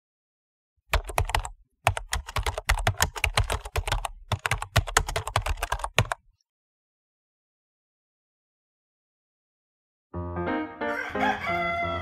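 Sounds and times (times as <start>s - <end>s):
computer keyboard typing: 0.9s - 6.2s.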